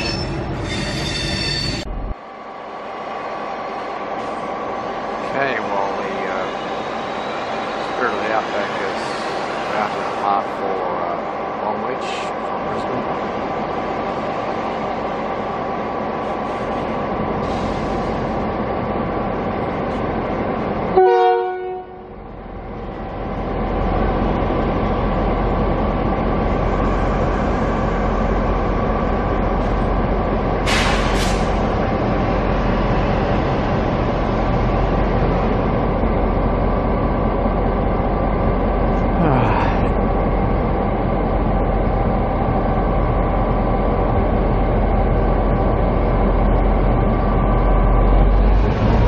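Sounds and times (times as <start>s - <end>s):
train horn blast: 20.9s - 22.2s
brief hiss: 30.7s - 31.6s.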